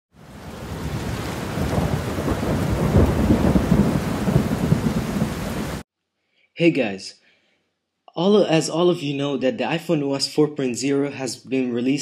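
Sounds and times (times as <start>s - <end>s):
rain hiss: 0.2s - 5.8s
low rolling thunder: 0.3s - 5.8s.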